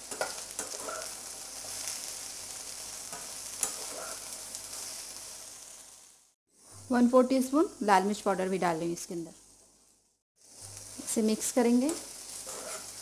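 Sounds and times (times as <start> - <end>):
okra sizzling in hot oil: 0.0 - 13.0
metal spatula scraping a pan: 0.1 - 1.2, 3.6 - 4.3, 11.9 - 13.0.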